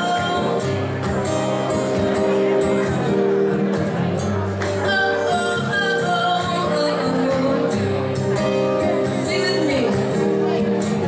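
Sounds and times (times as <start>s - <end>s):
woman singing: 0.0s - 0.6s, 4.8s - 7.9s, 8.8s - 10.2s
acoustic guitar strumming: 0.0s - 11.0s.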